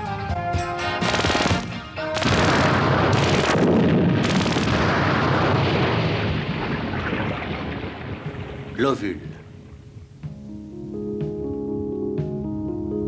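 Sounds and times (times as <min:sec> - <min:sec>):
cartoon explosion: 0:02.2 - 0:08.7.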